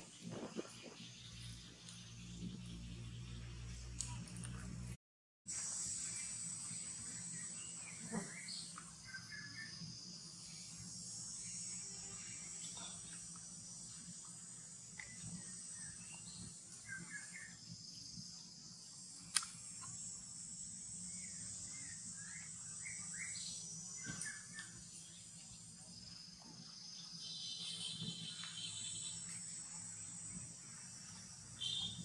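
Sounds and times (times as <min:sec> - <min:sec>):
insect chorus drone: 0:00.0 - 0:04.7, 0:05.5 - 0:32.0
short insect chirps: 0:05.5 - 0:32.0
sharp click: 0:19.3 - 0:19.6.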